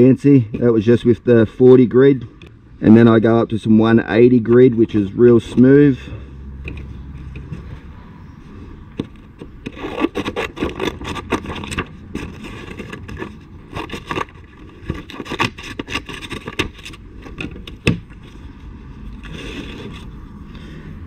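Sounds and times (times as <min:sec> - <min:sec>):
scissors cutting sandpaper: 0:09.6 - 0:16.8.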